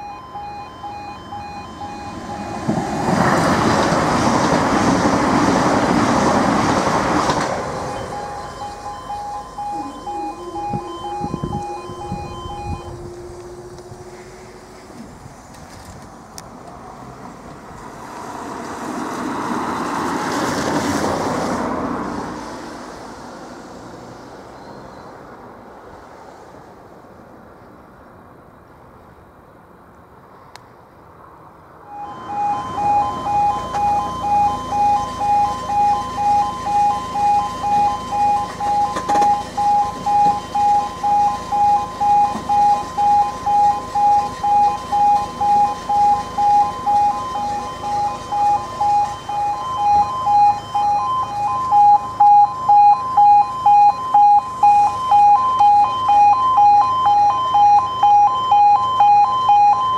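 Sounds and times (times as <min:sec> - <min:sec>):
two-tone level crossing alarm: 0:00.0 - 0:05.0, 0:06.4 - 0:14.7, 0:31.9 - 0:59.9
road vehicle passing: 0:00.0 - 0:59.9.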